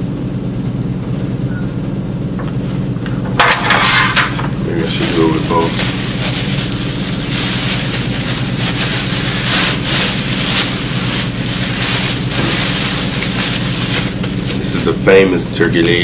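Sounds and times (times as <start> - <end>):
steady low hum: 0.0 - 16.0
plastic bag rustling: 3.4 - 16.0.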